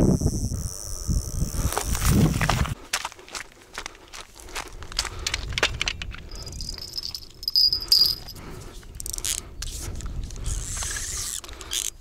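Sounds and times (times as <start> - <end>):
fishing reel drag buzzing: 0.0 - 2.1, 9.0 - 12.0.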